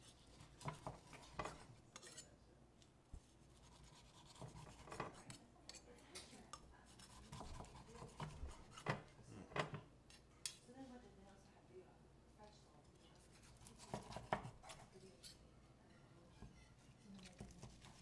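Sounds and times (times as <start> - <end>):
knife scraping on cutting board: 0.0 - 2.3, 3.3 - 5.8, 6.9 - 9.1, 13.2 - 15.4, 16.3 - 18.0.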